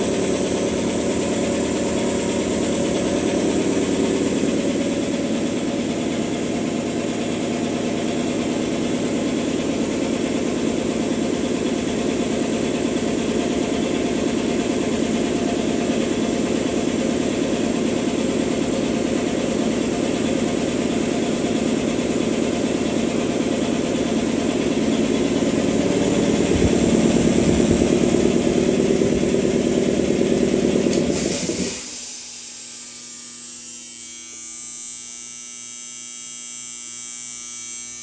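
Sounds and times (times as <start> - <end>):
air compressor running: 0.0 - 35.8
brief hiss of air: 31.1 - 32.3.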